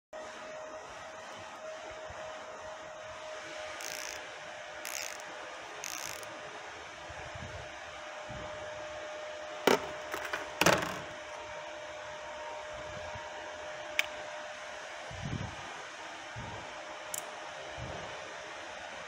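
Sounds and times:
steady background hum: 0:00.2 - 0:19.0
ratchet wrench clicking: 0:03.8 - 0:04.2, 0:04.8 - 0:05.2, 0:05.8 - 0:06.3.

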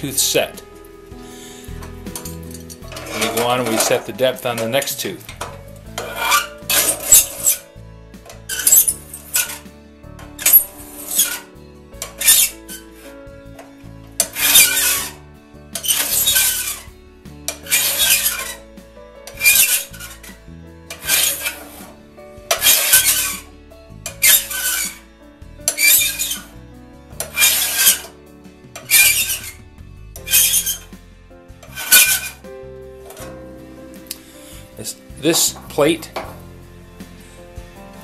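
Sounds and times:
file rasping on saw tooth: 0:06.0 - 0:07.6, 0:14.2 - 0:15.2, 0:15.8 - 0:16.9, 0:17.5 - 0:18.6, 0:19.3 - 0:20.3, 0:20.9 - 0:21.9, 0:22.5 - 0:23.5, 0:25.7 - 0:26.6, 0:27.2 - 0:28.1, 0:28.8 - 0:29.6, 0:30.2 - 0:30.9, 0:31.7 - 0:32.4.

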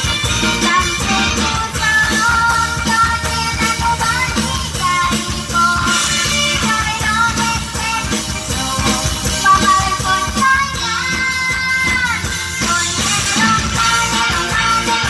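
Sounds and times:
band with dance beat: 0:00.0 - 0:15.0
person singing: 0:00.0 - 0:15.0.

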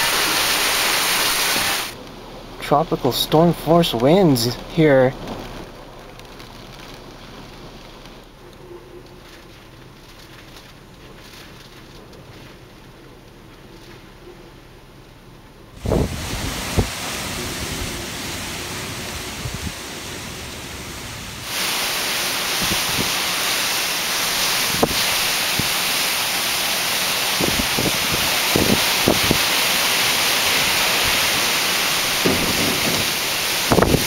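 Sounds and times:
wind buffeting microphone: 0:15.8 - 0:21.6, 0:22.4 - 0:23.3, 0:24.4 - 0:25.8, 0:27.3 - 0:29.6, 0:30.4 - 0:34.0
gusty storm wind rushing: 0:15.8 - 0:34.0.

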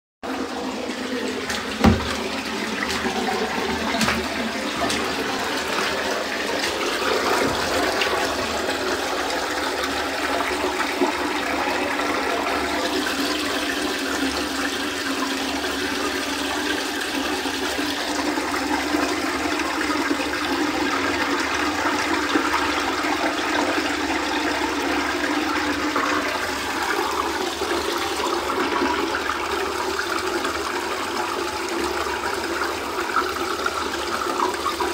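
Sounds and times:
water running over tiled floor: 0:00.2 - 0:34.9
sharp knock: 0:01.8 - 0:02.2.

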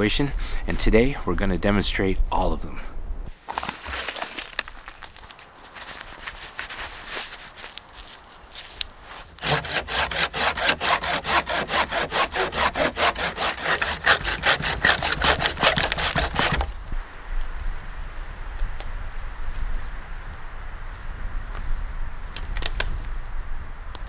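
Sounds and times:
soft rustling: 0:03.3 - 0:09.4
hand saw cutting branch: 0:09.1 - 0:16.8.

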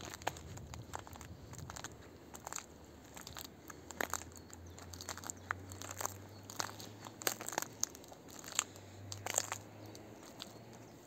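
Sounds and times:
footsteps crunching on forest floor: 0:00.0 - 0:10.9
small sticks snapping: 0:04.9 - 0:10.6.

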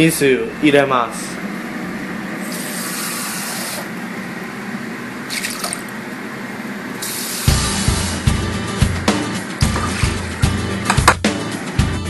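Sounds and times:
faucet running into a sink: 0:05.3 - 0:05.9
music with thumping beat: 0:07.5 - 0:12.0.

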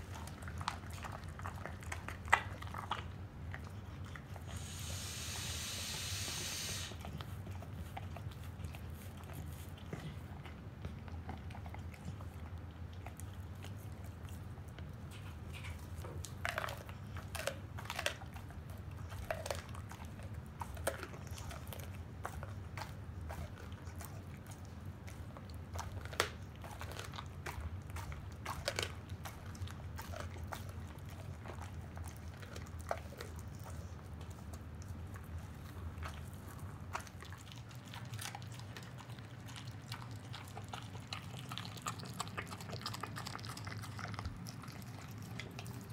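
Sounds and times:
dog crunching bones: 0:00.0 - 0:04.5, 0:07.0 - 0:45.9.

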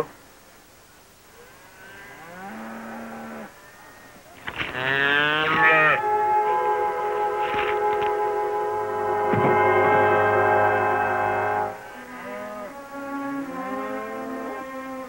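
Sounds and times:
music: 0:05.9 - 0:15.0.

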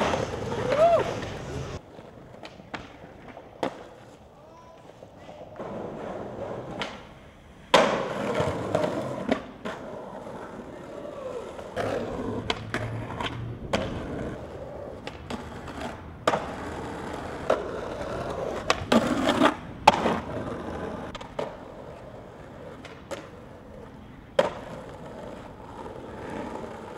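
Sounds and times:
skateboard tail pops and landings: 0:00.0 - 0:01.4, 0:02.3 - 0:04.1, 0:06.7 - 0:07.1, 0:07.7 - 0:09.9, 0:11.8 - 0:14.4, 0:15.0 - 0:21.7, 0:22.5 - 0:23.4, 0:24.3 - 0:26.9
skateboard wheels rolling on asphalt: 0:00.0 - 0:26.9.

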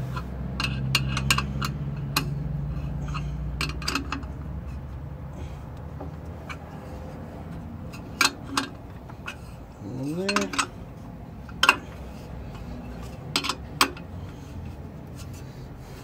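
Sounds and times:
metal nuts and bolts clinking: 0:00.1 - 0:02.4, 0:03.0 - 0:04.8, 0:07.9 - 0:10.8, 0:12.6 - 0:14.1.

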